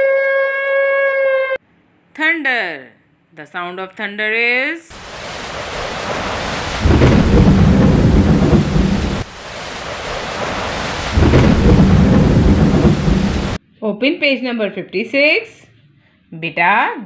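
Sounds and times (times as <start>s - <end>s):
steady rain: 4.9s - 13.6s
thunder rolling: 5.0s - 13.6s.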